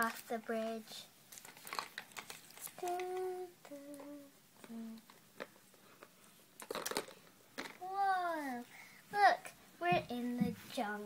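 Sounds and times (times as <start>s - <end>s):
plastic toys clicking: 1.4s - 5.5s, 6.6s - 7.8s
child humming: 2.8s - 5.1s.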